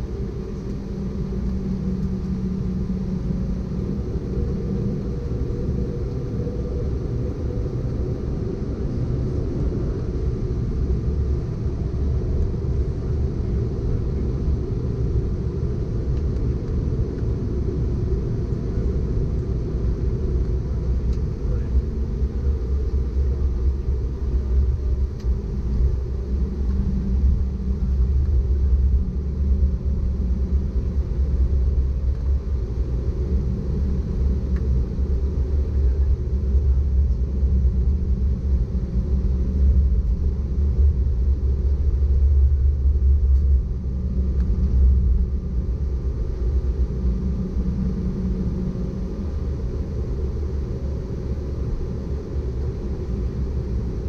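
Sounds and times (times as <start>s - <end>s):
faint steady engine tones: 0.0s - 54.0s
jet engine low rumble: 0.0s - 54.0s.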